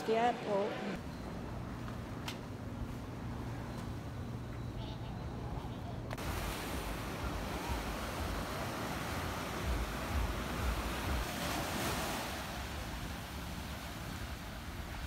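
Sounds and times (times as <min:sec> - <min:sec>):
waves washing up a beach: 0:06.2 - 0:15.0.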